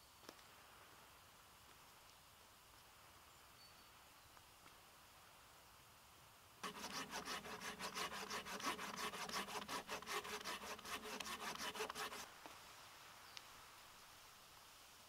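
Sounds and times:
hand saw cutting branch: 6.6s - 12.3s.

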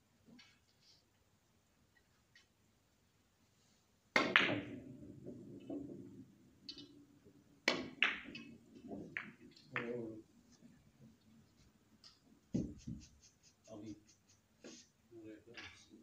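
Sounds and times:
cue tip striking ball: 4.2s - 6.0s, 7.6s - 9.9s
billiard balls clicking: 4.2s - 10.1s
balls rolling on cloth: 4.4s - 13.2s.

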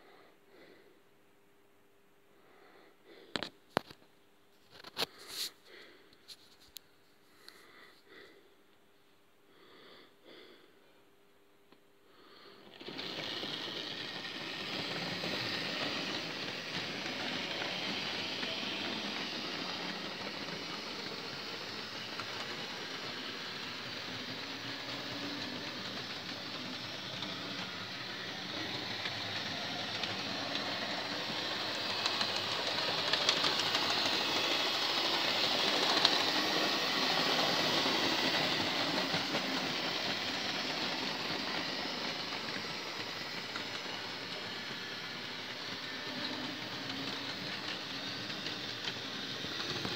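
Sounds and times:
model train wheels rattling: 12.6s - 49.9s.

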